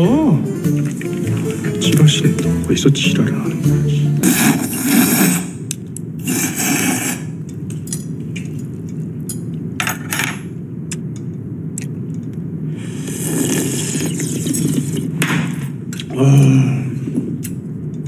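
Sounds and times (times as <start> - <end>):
steady low hum: 0.0 - 18.0
people slurping: 4.1 - 7.4, 12.7 - 15.2.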